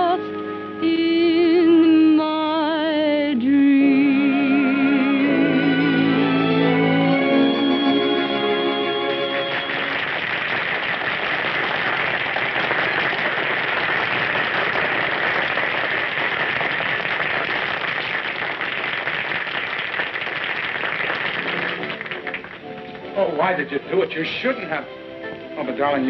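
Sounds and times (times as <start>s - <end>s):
music: 0.0s - 11.2s, 21.0s - 26.0s
audience applauding: 5.8s - 24.8s.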